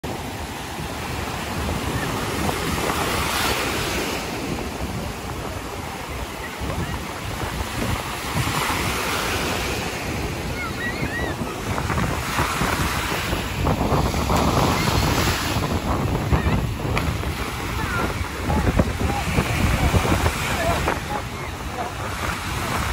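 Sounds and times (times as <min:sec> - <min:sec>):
surf breaking on a beach: 0:00.0 - 0:22.9
wind buffeting the microphone: 0:00.1 - 0:22.9.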